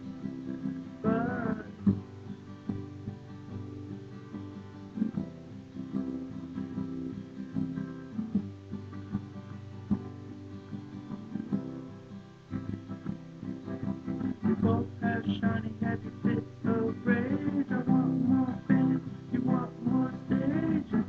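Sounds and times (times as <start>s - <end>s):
acoustic guitar strumming: 0.0s - 21.0s
man singing: 1.0s - 1.9s, 14.2s - 21.0s.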